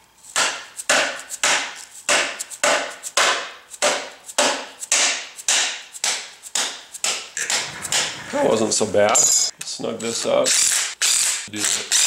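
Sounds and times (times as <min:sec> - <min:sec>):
mallet striking metal driver: 0:00.4 - 0:08.4.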